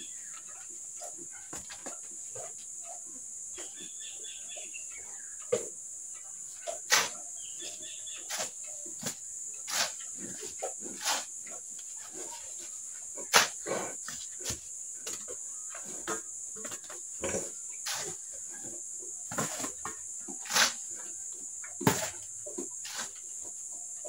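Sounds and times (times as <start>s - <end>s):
shovel scraping wet cement: 6.9s - 7.2s, 8.3s - 10.0s, 10.9s - 11.3s, 13.3s - 13.6s, 17.8s - 18.2s, 20.4s - 20.9s, 22.8s - 23.2s.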